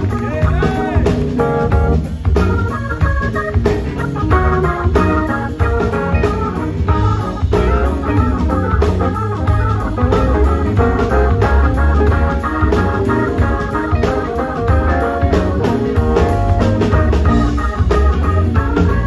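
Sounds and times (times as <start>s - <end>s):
drums: 0.0s - 19.0s
electric guitar: 0.0s - 19.0s
heavy bass line: 0.0s - 19.0s
organ chords: 0.0s - 19.0s.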